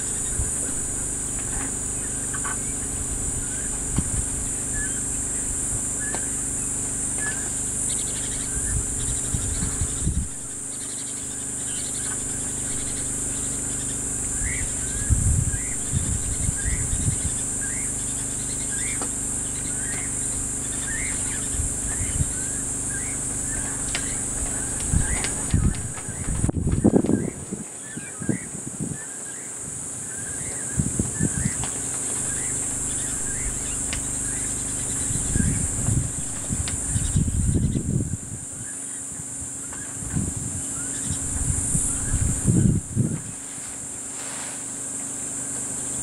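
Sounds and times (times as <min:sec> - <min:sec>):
low steady hum: 0:00.0 - 0:29.0, 0:29.6 - 0:44.0
insects shrilling: 0:00.0 - 0:46.0
bird giving rising chirps: 0:02.0 - 0:29.5, 0:30.1 - 0:39.0.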